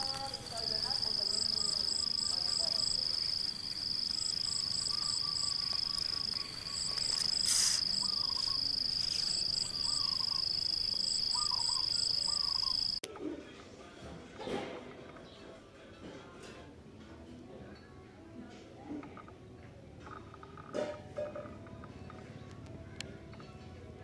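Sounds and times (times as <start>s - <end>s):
insects whining high-pitched: 0.0s - 13.0s
pulsing insect call: 0.0s - 13.0s
bird chirps: 1.3s - 13.0s
brief hiss: 7.1s - 8.2s.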